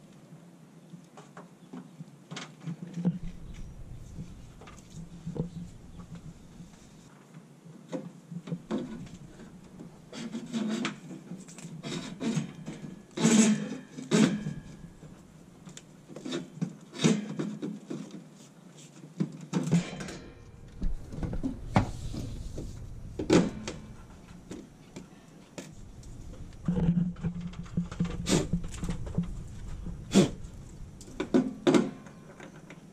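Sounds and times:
cable rubbing and scraping: 3.0s - 7.1s, 8.6s - 16.5s, 20.3s - 24.8s, 25.6s - 32.9s.

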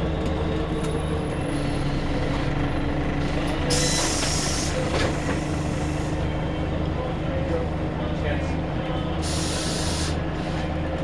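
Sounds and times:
bus diesel engine running: 0.0s - 11.0s
compressed air hiss: 9.2s - 10.6s.

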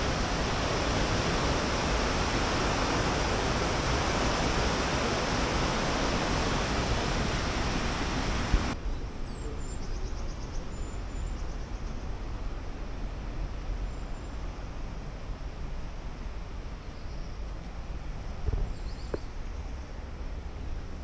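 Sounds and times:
water rushing over weir: 0.0s - 8.8s.

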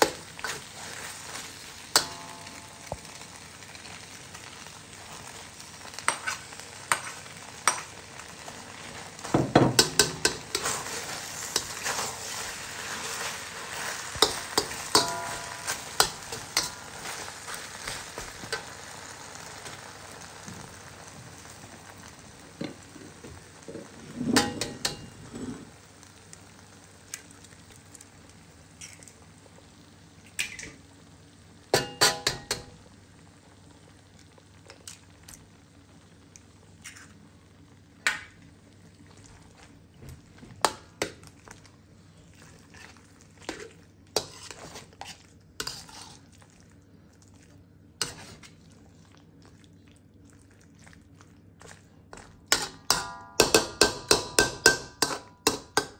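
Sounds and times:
metal spatula scraping a wok: 0.0s - 2.6s, 6.0s - 7.8s, 8.7s - 18.9s, 24.1s - 25.8s, 42.7s - 46.3s, 48.0s - 48.4s
beef sizzling: 0.0s - 55.9s.

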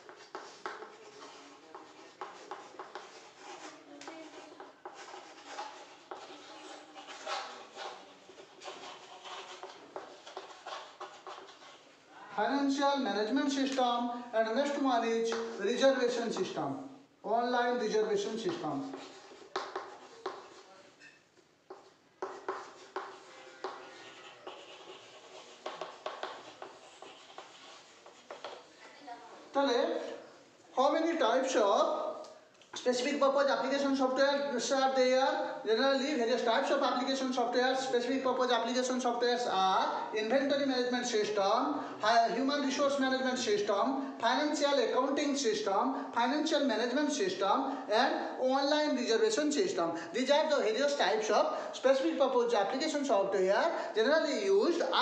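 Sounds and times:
chalk tapping and scraping on chalkboard: 0.0s - 11.9s, 15.3s - 15.6s, 18.2s - 28.9s.

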